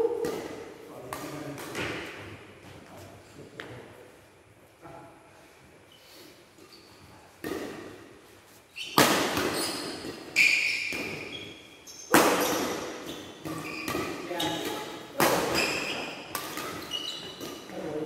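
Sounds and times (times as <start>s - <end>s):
shoes squeaking on court: 6.6s - 7.8s, 8.4s - 17.8s.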